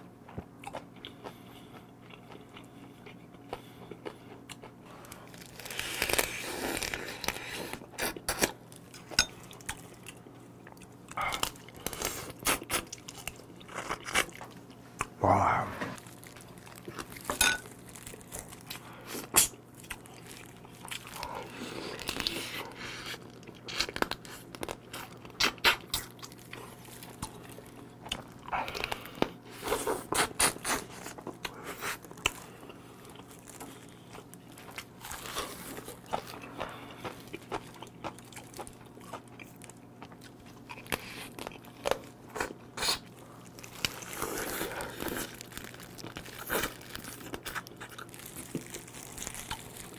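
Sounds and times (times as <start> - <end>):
teeth crunching crab shell: 30.0 - 49.9.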